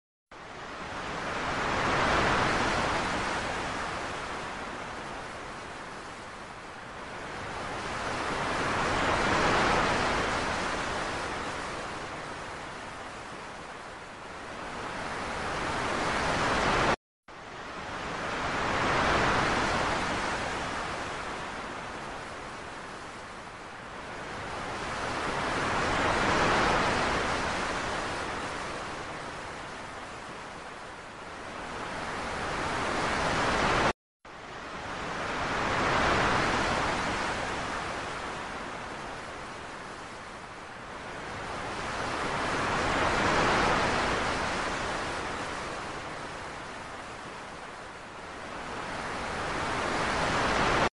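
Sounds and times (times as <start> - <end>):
ocean waves breaking: 0.4 - 50.9.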